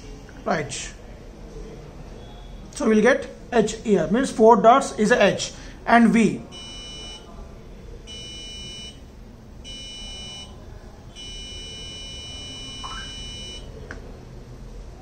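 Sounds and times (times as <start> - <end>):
piezo buzzer beeping: 6.5 - 7.3, 8.1 - 9.0, 9.6 - 13.7.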